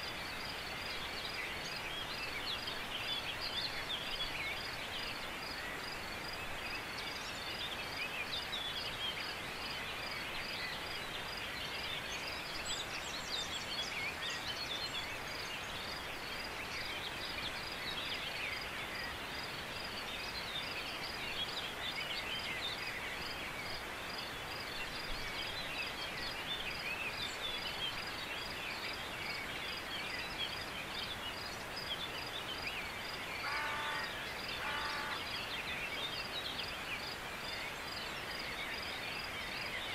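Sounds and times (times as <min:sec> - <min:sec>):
birds singing: 0:00.0 - 0:39.9
lower pitched bird calls: 0:32.6 - 0:36.1.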